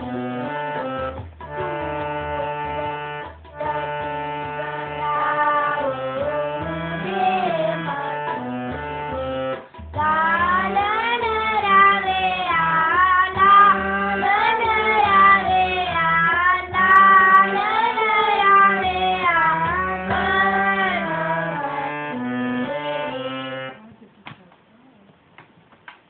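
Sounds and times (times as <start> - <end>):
harmonium chords: 0.0 - 23.9
boy singing a hymn: 3.6 - 8.6, 9.9 - 23.8.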